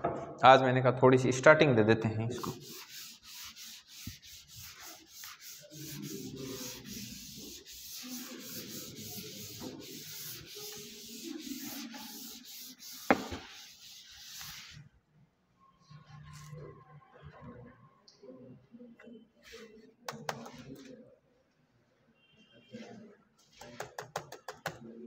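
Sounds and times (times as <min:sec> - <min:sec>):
chalk duster rubbing blackboard: 0:02.4 - 0:14.8.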